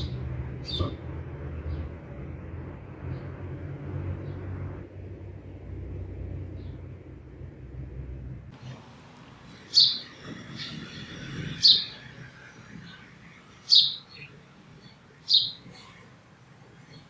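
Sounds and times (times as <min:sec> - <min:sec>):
sparrow chirping: 0:00.0 - 0:01.0, 0:09.5 - 0:16.1.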